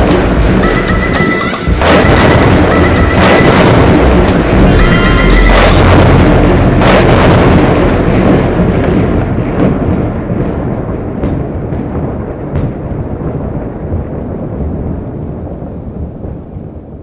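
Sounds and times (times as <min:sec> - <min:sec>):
dramatic music: 0:00.0 - 0:12.1
rumbling wash: 0:00.0 - 0:17.0
thunder cracks: 0:00.0 - 0:17.0.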